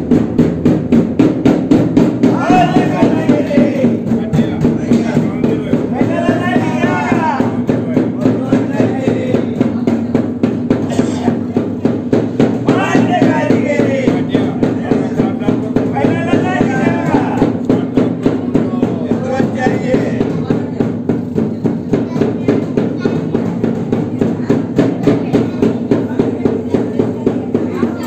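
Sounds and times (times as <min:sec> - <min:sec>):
barrel drum beaten with a stick: 0:00.0 - 0:28.0
voices chanting: 0:02.0 - 0:21.0.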